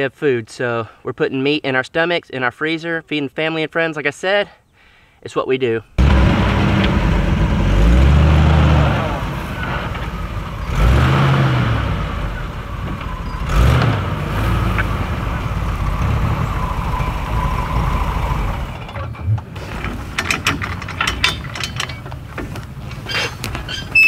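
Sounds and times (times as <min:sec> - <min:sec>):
car engine running: 0:06.0 - 0:19.7
thumps: 0:11.9 - 0:24.0
metallic clicks and clanks: 0:18.7 - 0:24.0.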